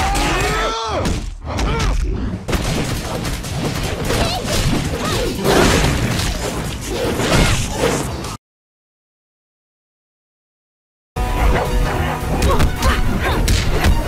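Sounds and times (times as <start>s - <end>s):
rapid hits and blasts: 2.5s - 7.8s
soundtrack music: 11.2s - 14.0s.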